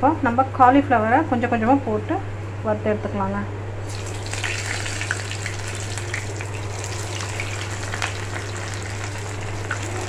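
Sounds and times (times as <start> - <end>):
batter deep-frying in hot oil: 3.8 - 10.0.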